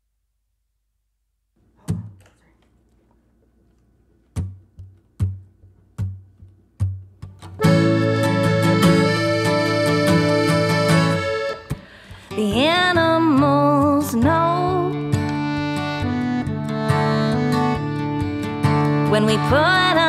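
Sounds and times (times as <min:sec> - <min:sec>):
acoustic guitar strumming: 0:06.0 - 0:20.0
accordion chords: 0:07.5 - 0:12.3, 0:14.2 - 0:20.0.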